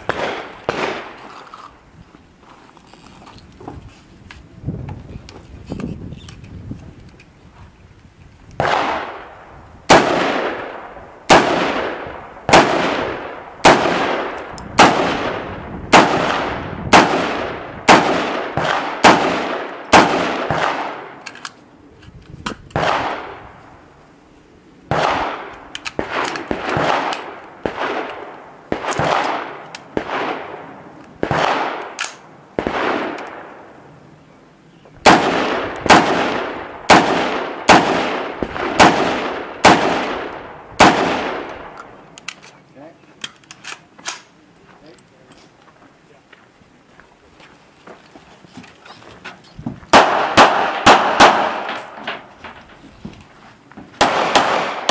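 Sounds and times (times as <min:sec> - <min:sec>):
rifle shots with echo: 0:00.0 - 0:01.2, 0:08.6 - 0:21.2, 0:22.7 - 0:23.5, 0:24.9 - 0:33.8, 0:35.0 - 0:42.2, 0:49.9 - 0:52.6, 0:54.0 - 0:54.9.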